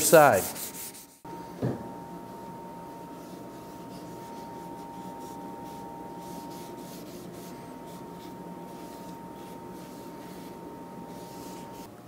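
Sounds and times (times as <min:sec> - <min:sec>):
steady high hum: 0:00.0 - 0:12.0
cloth wiping on wood: 0:03.1 - 0:11.9.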